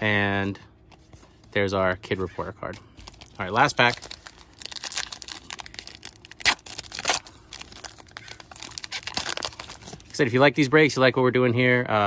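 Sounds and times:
foil wrapper tearing and crinkling: 3.0 - 10.1.

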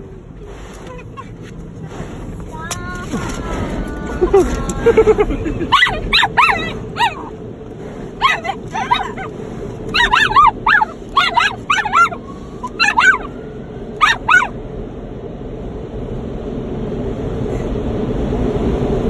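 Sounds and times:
car wash noise: 0.0 - 19.0
dog whining with yips: 5.7 - 7.3, 8.2 - 9.3, 9.9 - 13.4, 14.0 - 14.5.

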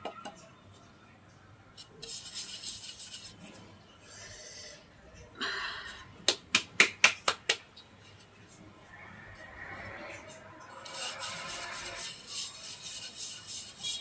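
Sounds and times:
bowl scraping: 8.9 - 14.0.

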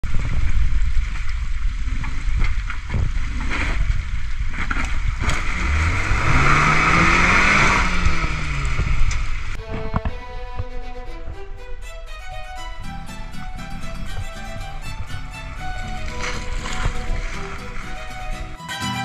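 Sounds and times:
car engine pulling under load: 3.3 - 18.6.

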